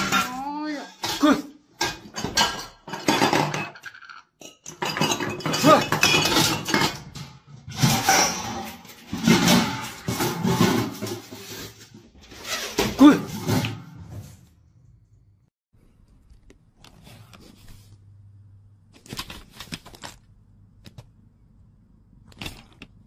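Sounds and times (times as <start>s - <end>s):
metal wok and lid clattering: 1.8s - 11.6s.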